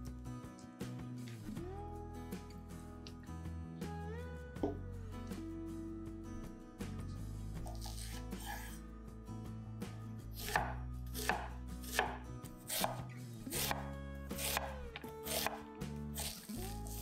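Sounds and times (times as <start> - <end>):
background music: 0.0 - 17.0
knife chopping on cutting board: 10.4 - 17.0.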